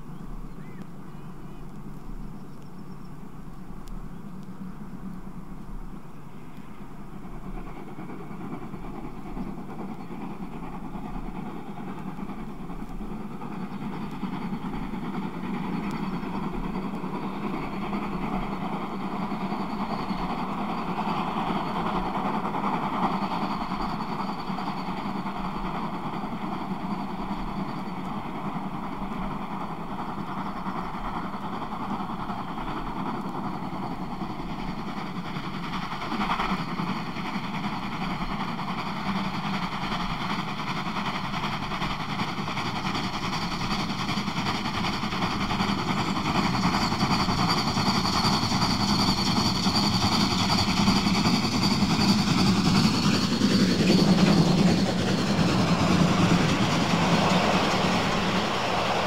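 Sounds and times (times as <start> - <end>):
steam locomotive exhaust: 0.0 - 59.0.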